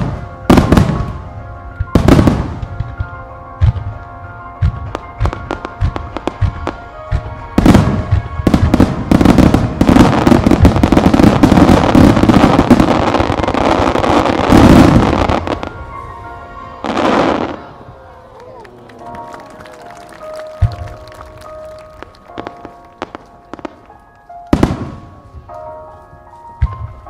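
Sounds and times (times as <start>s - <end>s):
fireworks bursting: 0.0s - 4.0s, 4.6s - 15.8s
music: 0.0s - 27.0s.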